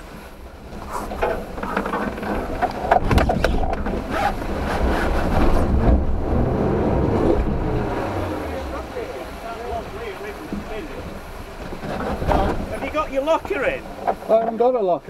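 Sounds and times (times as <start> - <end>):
wheels knocking on rock: 0.8 - 6.1, 10.4 - 14.6
car engine working hard: 2.6 - 11.4.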